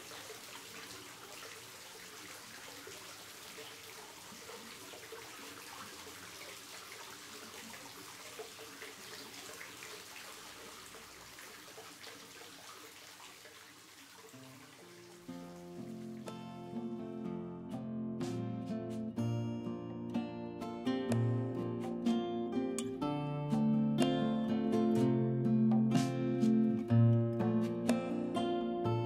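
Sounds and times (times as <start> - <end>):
water drips and splashes: 0.0 - 16.6
water trickling into pool: 0.0 - 17.2.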